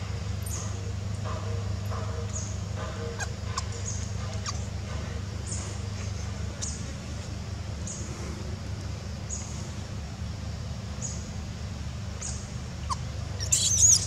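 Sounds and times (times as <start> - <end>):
small animals squeaking: 3.2 - 4.7, 12.2 - 14.0
small animals chirping: 12.2 - 14.0.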